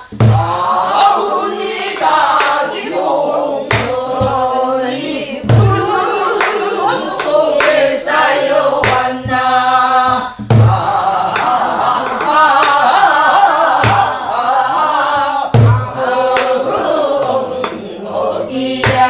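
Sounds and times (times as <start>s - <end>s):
barrel drum strikes: 3.7s - 4.5s, 5.4s - 6.0s, 8.8s - 9.5s, 10.1s - 12.8s, 15.5s - 16.6s.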